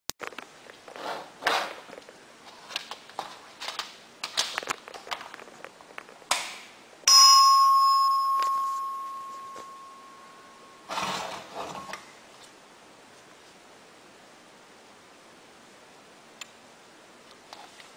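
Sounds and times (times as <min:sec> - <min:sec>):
electric bell chime gong: 0:07.1 - 0:11.2.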